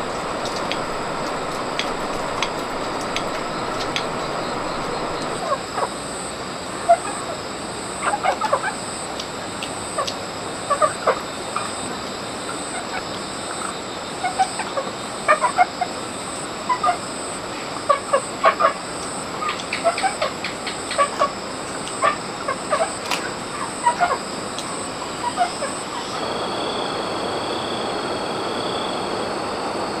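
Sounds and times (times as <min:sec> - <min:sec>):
chickens clucking: 0:00.0 - 0:06.0, 0:08.0 - 0:16.0, 0:16.7 - 0:26.2
steady high hiss: 0:00.0 - 0:30.0.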